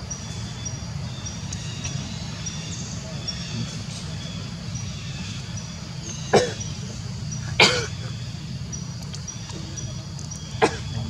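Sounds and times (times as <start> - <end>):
monkeys giving coughing barks: 6.0 - 8.2, 9.5 - 11.0.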